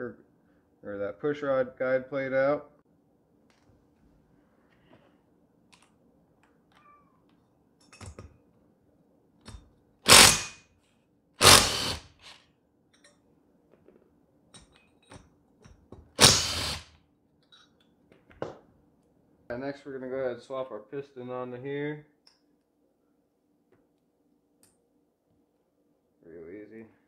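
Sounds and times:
tool handling clicks and knocks: 7.8s - 8.4s, 12.9s - 16.2s
impact driver running: 10.1s - 10.6s, 11.4s - 12.4s, 16.2s - 16.9s.

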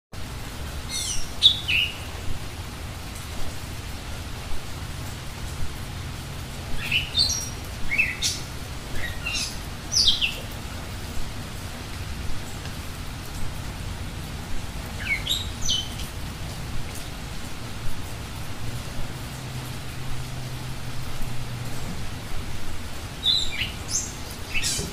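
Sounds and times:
rain hissing: 0.2s - 24.9s
birds singing: 0.8s - 2.2s, 6.7s - 10.6s, 14.9s - 16.1s, 23.1s - 24.9s.

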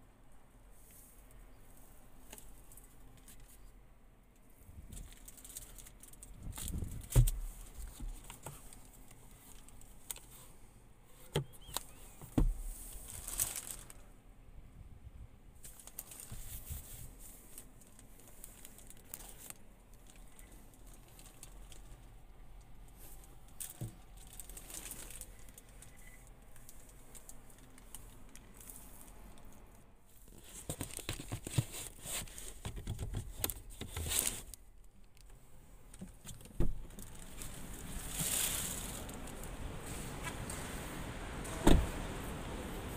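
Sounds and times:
plastic wrap crinkling: 4.9s - 10.3s, 12.9s - 14.0s, 15.6s - 22.2s, 22.9s - 29.5s, 30.3s - 35.3s, 36.8s - 39.6s.

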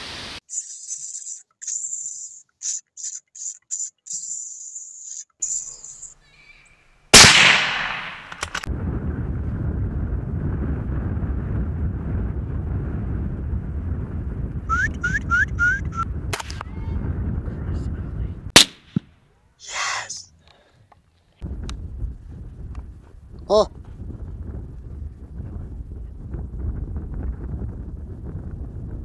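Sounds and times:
short rising chirps: 0.4s - 6.9s
rifle shots: 7.2s - 8.7s, 18.6s - 19.0s
steady low rumble: 8.6s - 14.7s, 16.0s - 18.6s, 21.4s - 29.0s.

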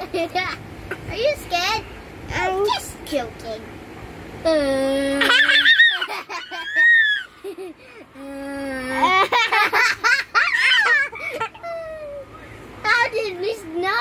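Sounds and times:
child making silly vocal note: 4.4s - 5.6s
toddler laughing: 5.0s - 12.3s.

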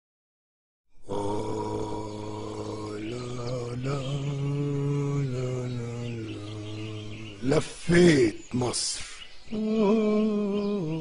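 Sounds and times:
deep chanted drone: 1.0s - 7.6s, 9.5s - 11.0s.

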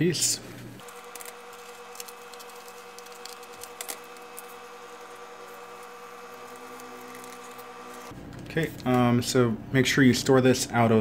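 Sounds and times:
steady hum: 0.1s - 9.9s
plastic film crinkling: 0.8s - 8.9s
scissors snipping plastic: 0.8s - 9.0s.

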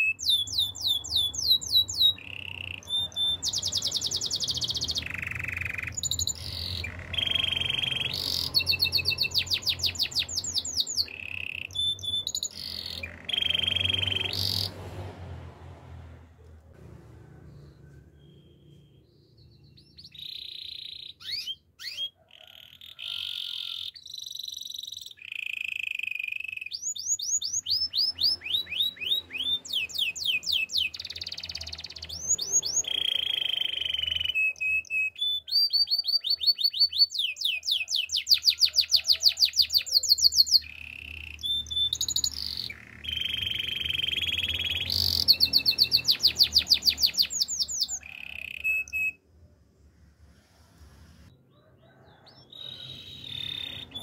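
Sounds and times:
canary singing: 0.0s - 15.0s, 17.5s - 54.0s.

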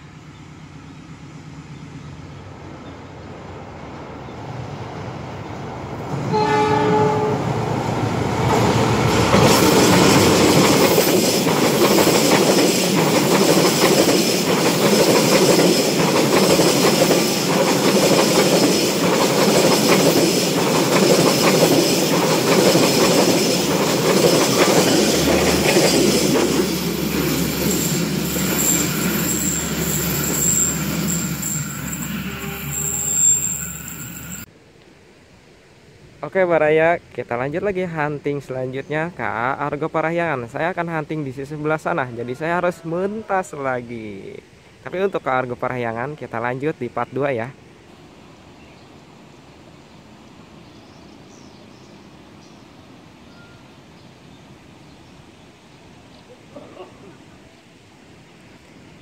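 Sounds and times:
train passing: 0.0s - 34.5s
locomotive horn blast: 6.3s - 7.5s, 32.0s - 33.6s
wheels clickety-clack on rails: 8.4s - 31.3s.

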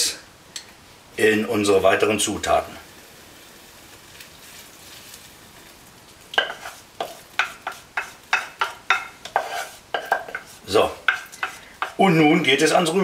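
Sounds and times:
hot liquid pouring with hiss: 1.1s - 13.0s
wooden spoon scraping saucepan: 6.4s - 12.2s.

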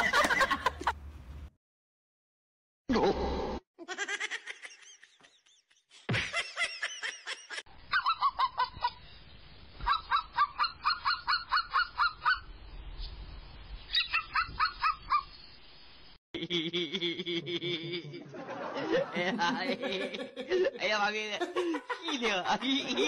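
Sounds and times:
high yapping barks: 7.9s - 8.8s, 9.8s - 12.5s, 13.9s - 15.3s
high wavering animal calls: 9.8s - 12.5s, 13.9s - 15.3s.

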